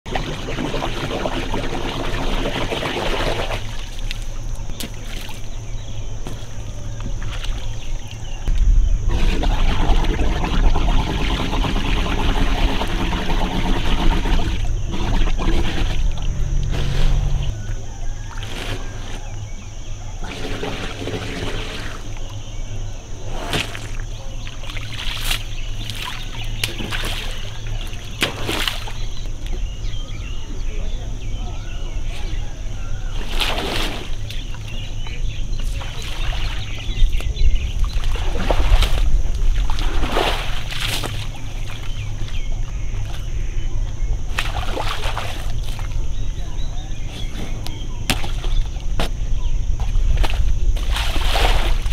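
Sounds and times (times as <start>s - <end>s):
low rumble: 5.7s - 18.2s
trunk splashing in muddy water: 9.1s - 19.4s, 23.3s - 29.2s, 33.1s - 34.8s, 37.8s - 43.2s, 44.3s - 46.3s, 47.2s - 49.2s, 49.8s - 51.9s
elephant trunk splashing water: 23.4s - 29.1s, 33.1s - 34.5s, 37.9s - 42.0s, 44.3s - 46.0s, 50.2s - 51.9s.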